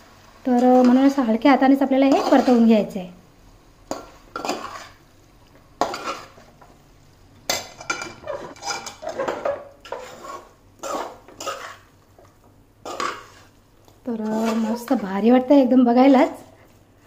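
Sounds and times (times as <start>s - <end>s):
spatula scraping metal pot: 2.0s - 2.7s, 4.4s - 5.0s, 7.8s - 11.9s, 12.8s - 13.6s, 14.2s - 15.1s.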